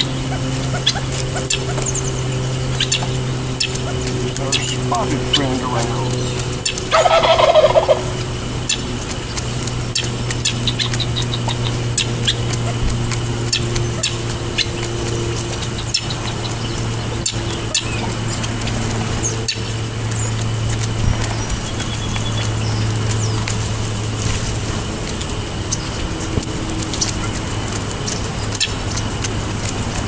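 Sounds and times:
turkey gobbling: 0:00.0 - 0:14.9
pecking clicks on asphalt: 0:00.0 - 0:30.0.

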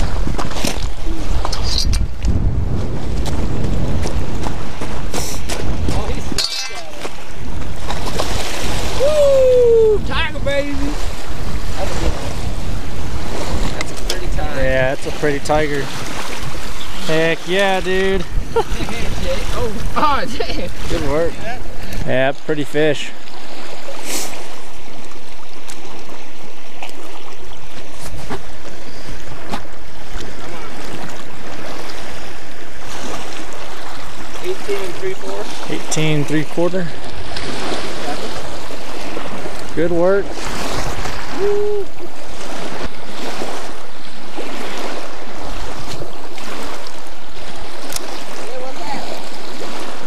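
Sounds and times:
wind rumble on microphone: 0:00.0 - 0:22.3
small waves lapping on gravel: 0:10.8 - 0:41.4, 0:42.1 - 0:50.0.

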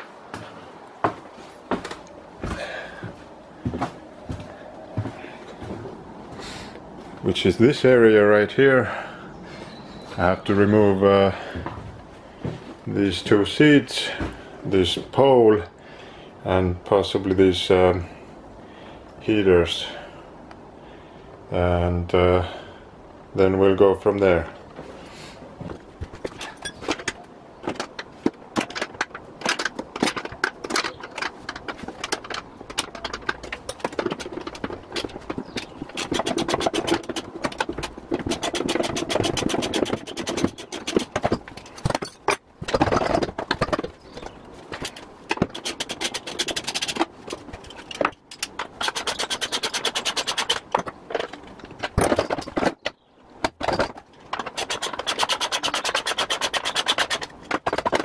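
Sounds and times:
metal clinks and scraping: 0:26.2 - 0:52.9.

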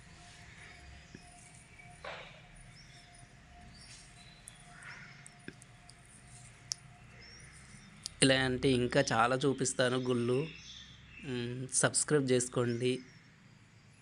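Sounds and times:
faint high chirps: 0:00.0 - 0:08.2.

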